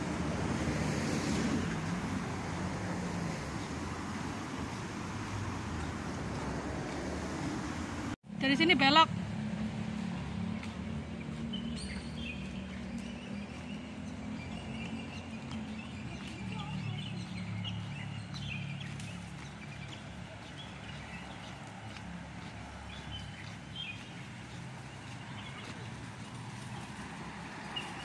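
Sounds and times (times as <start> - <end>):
traffic rumble: 0.0 - 28.0
birds chirping: 8.4 - 28.0.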